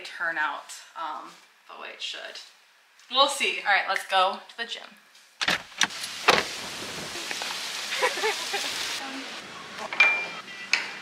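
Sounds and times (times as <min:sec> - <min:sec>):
open air hiss: 0:00.4 - 0:11.0
car door clunk: 0:05.4 - 0:06.5.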